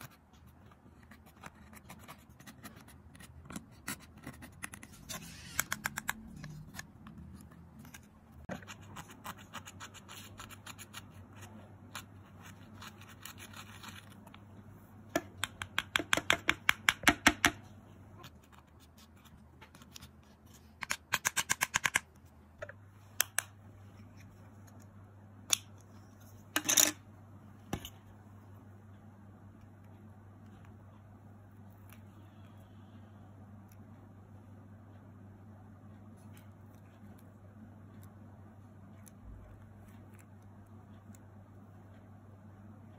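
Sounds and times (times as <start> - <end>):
stick scratching powder makeup: 1.0 - 14.3.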